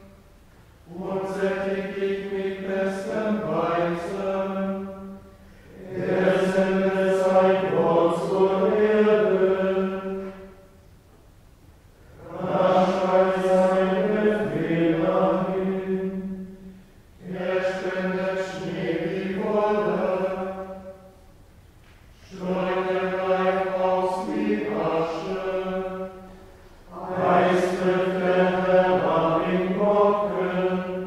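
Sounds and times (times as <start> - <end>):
men singing chant in unison: 0.9 - 4.9, 5.7 - 10.2, 17.2 - 20.7, 26.9 - 31.0.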